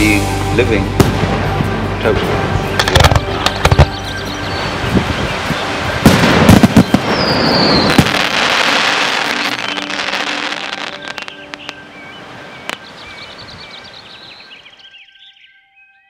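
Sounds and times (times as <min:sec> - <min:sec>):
fireworks crackling: 0:00.0 - 0:04.0, 0:04.9 - 0:11.8
faint music: 0:00.0 - 0:14.6
fireworks bangs: 0:01.0 - 0:01.6, 0:02.8 - 0:04.0, 0:06.0 - 0:11.4.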